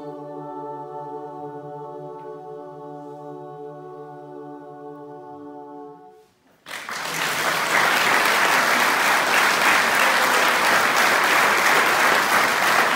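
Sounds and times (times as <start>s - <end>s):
choir holding a chord: 0.0s - 6.3s
audience applause: 6.7s - 12.9s.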